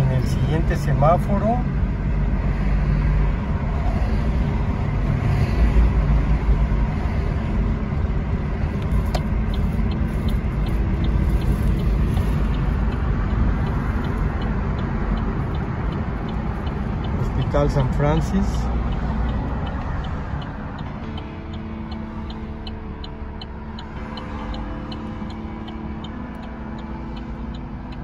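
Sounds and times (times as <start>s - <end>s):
car road noise and engine rumble: 0.0s - 28.0s
turn signal clicking: 8.2s - 28.0s.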